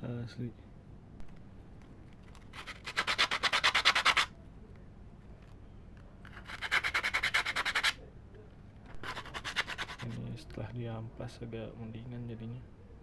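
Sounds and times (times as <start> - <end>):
sandpaper rubbing on wood: 2.6 - 4.3, 6.4 - 8.0, 9.0 - 10.2.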